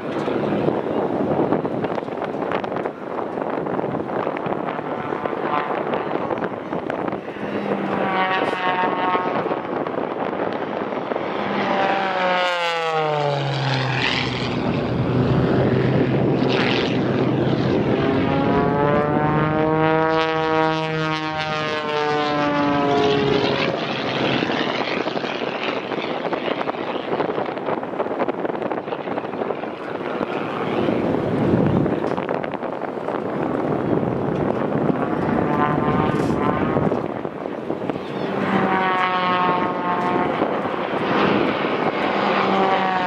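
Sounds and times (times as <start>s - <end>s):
plane piston engine droning: 0.0s - 43.0s.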